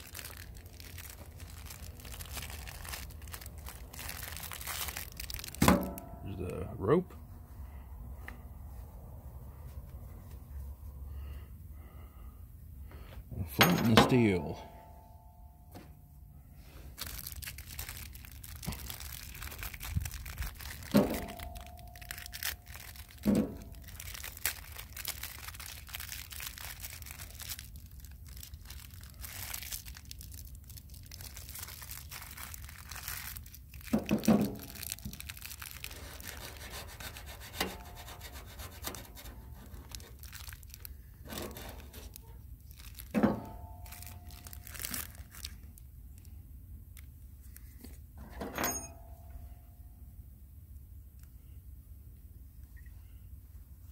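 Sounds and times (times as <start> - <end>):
packaging crinkling and tearing: 0.0 - 6.0, 16.7 - 46.4.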